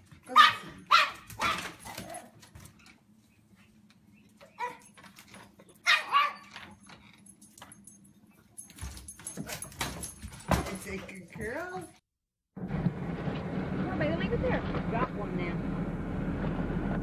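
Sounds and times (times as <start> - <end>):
dog barking: 0.3 - 2.3, 5.8 - 6.5.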